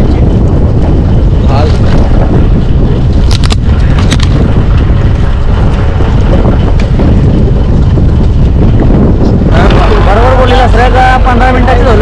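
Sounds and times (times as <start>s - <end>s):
boat engine rumbling: 0.0s - 12.0s
wind buffeting microphone: 0.0s - 12.0s
sharp clicks: 3.2s - 4.4s.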